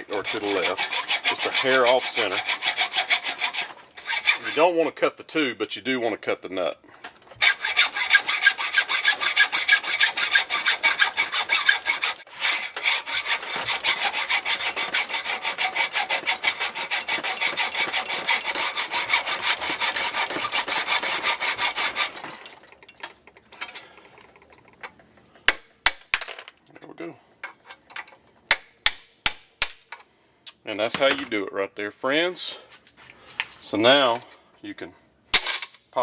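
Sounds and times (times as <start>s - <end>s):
hacksaw cutting metal: 0.0s - 4.7s, 7.3s - 23.7s.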